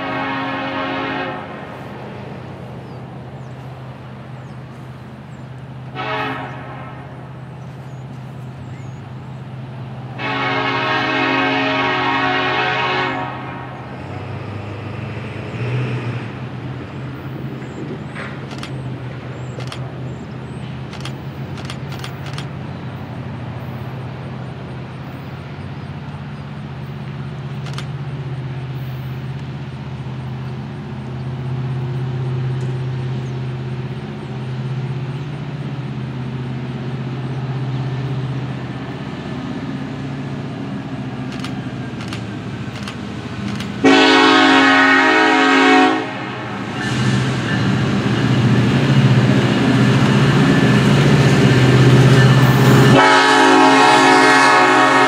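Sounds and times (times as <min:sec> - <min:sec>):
diesel locomotive drone: 0:00.0 - 0:55.0
short sharp ticks: 0:18.2 - 0:19.9, 0:20.9 - 0:22.6, 0:27.6 - 0:28.0, 0:41.2 - 0:43.8.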